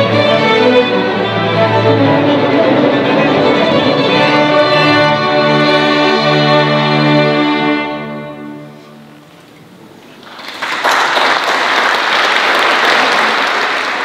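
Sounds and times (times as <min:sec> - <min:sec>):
string orchestra chord: 0:00.0 - 0:09.2
audience applause: 0:10.1 - 0:14.0.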